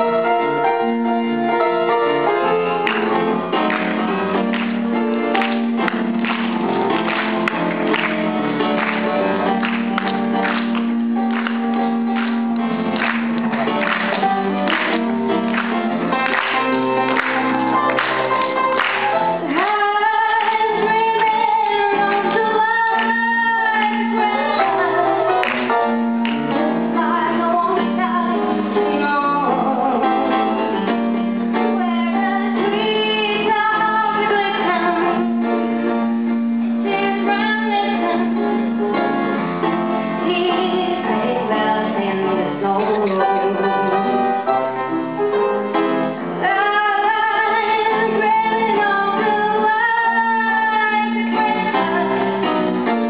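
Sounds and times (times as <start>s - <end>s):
instrumental accompaniment: 0.0s - 53.0s
woman singing into microphone: 18.3s - 25.8s, 26.4s - 30.6s, 31.6s - 35.4s, 36.8s - 38.7s, 40.2s - 44.1s, 46.4s - 52.7s.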